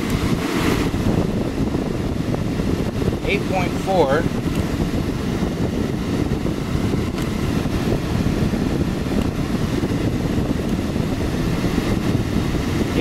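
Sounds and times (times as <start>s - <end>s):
window air conditioner running: 0.0s - 13.0s.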